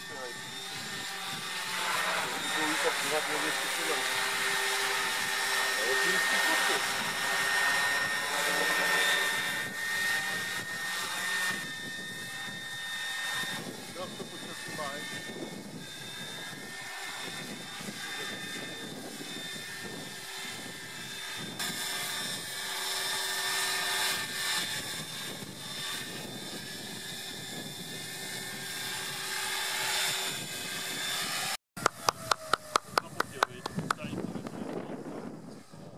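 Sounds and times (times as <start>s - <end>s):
rc helicopter motor whine: 0.0s - 35.9s
rotor and air noise: 0.0s - 35.9s.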